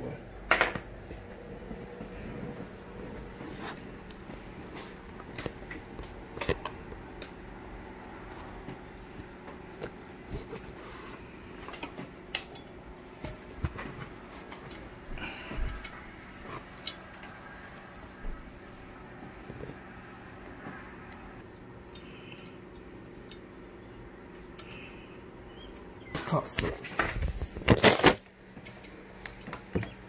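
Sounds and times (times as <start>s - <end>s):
faint steady hum: 0.0s - 30.0s.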